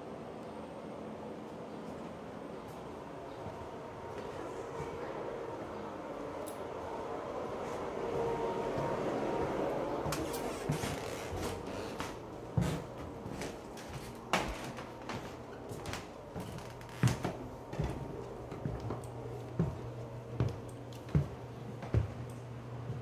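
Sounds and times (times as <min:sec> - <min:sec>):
steady low hum: 0:00.0 - 0:23.0
footsteps on carpeted stairs: 0:07.5 - 0:23.0.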